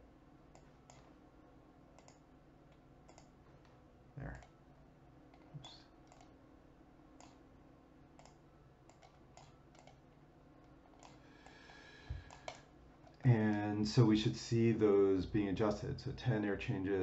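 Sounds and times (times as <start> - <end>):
low room hum: 0.0 - 17.0
faint computer mouse clicks: 0.5 - 1.1, 2.0 - 4.5, 5.3 - 6.3, 7.2 - 7.4, 8.2 - 10.0.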